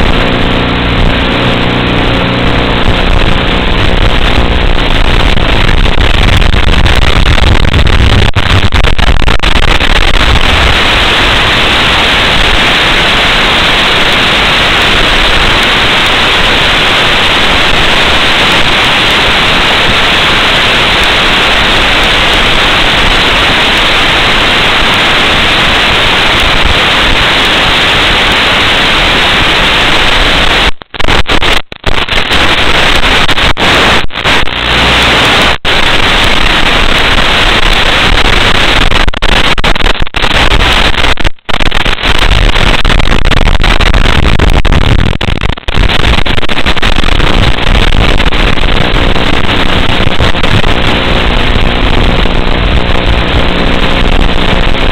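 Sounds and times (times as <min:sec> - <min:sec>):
low electrical buzz: 0:00.0 - 0:08.4
radio static hiss: 0:00.0 - 0:54.9.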